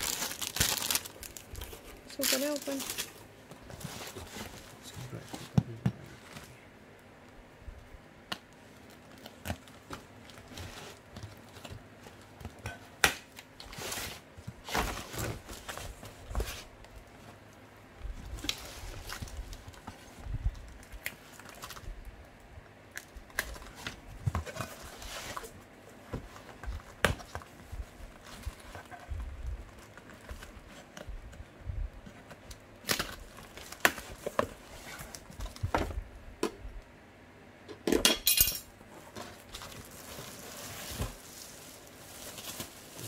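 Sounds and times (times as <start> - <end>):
plastic packaging rustling: 0.0 - 6.6, 13.4 - 22.0, 32.2 - 36.0, 38.8 - 43.0.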